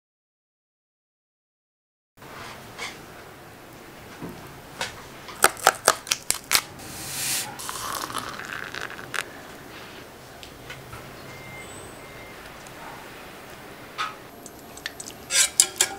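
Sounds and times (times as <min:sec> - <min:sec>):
short hiss: 0:06.8 - 0:08.4
hot water pouring into mug: 0:06.9 - 0:09.3.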